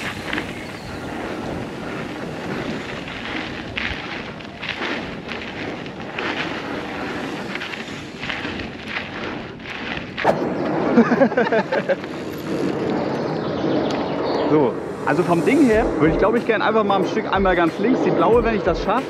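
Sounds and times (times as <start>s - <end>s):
tyres rumbling on dirt: 0.0s - 12.9s
wind buffeting microphone: 0.0s - 19.0s
loud wavering sound: 13.8s - 18.2s.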